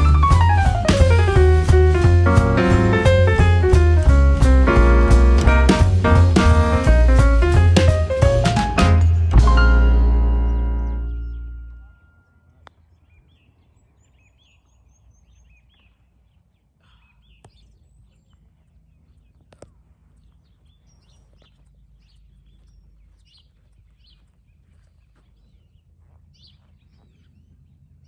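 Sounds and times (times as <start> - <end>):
low steady background rumble: 0.0 - 28.0
small birds chirping and whistling: 20.2 - 27.6.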